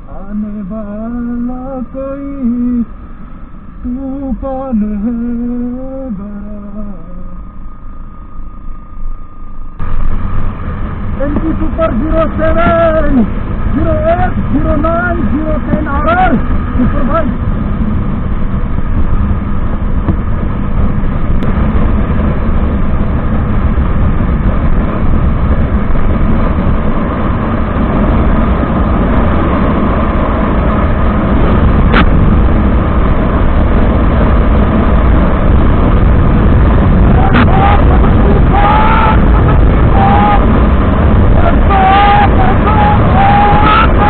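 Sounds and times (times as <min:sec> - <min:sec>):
motorcycle engine running: 0:00.0 - 0:44.0
wind rushing over microphone: 0:00.0 - 0:44.0
short rising-and-falling tones: 0:01.6 - 0:11.3.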